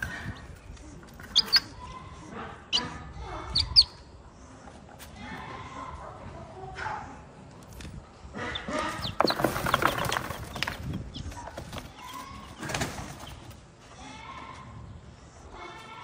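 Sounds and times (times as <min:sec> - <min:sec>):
chicks peeping: 0:00.0 - 0:04.1, 0:08.4 - 0:13.6
straw and feathers rustling: 0:08.8 - 0:13.6.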